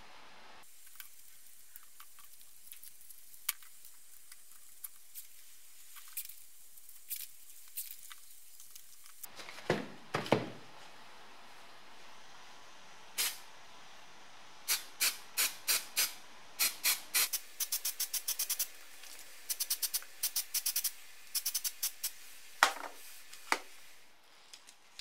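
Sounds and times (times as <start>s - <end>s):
handling sounds: 7.0s - 10.9s.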